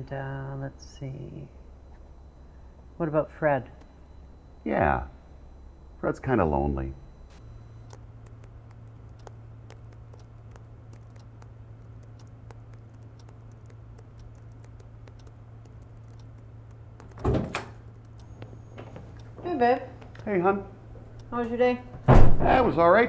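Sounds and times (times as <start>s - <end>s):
steady low hum: 0.0s - 23.0s
typing on laptop keyboard: 7.8s - 17.3s
door opening with thunk: 17.2s - 17.8s, 22.0s - 22.5s.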